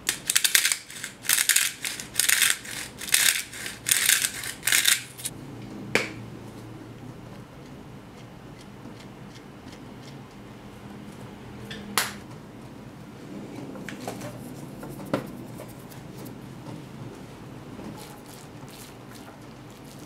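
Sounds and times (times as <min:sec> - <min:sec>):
kitchen utensils clicking: 0:00.0 - 0:05.3.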